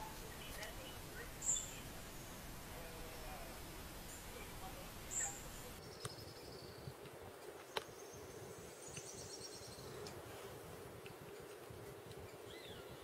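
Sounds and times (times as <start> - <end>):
faint clicks: 10.0 - 10.2.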